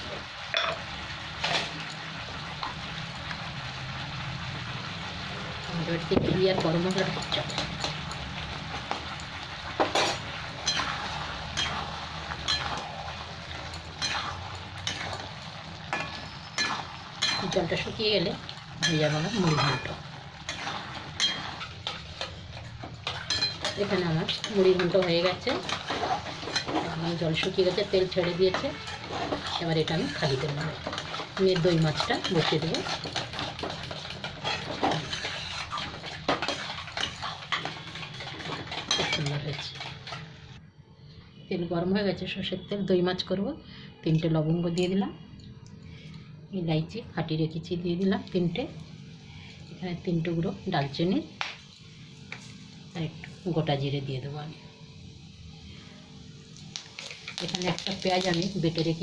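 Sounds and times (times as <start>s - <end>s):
metal spatula scraping pan: 9.8s - 18.0s, 18.7s - 40.3s.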